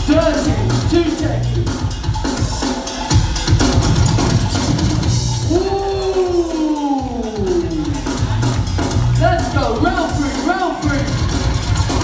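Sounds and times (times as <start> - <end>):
loud dance music: 0.0 - 12.0.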